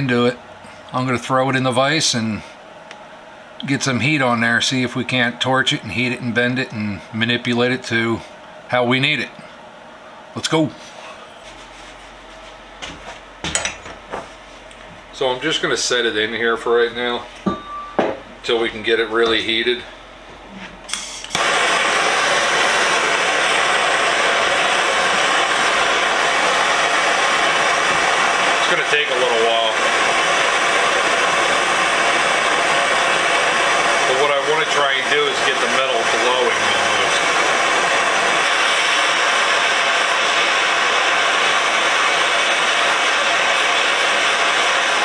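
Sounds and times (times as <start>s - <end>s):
gas torch hissing: 20.9s - 45.0s.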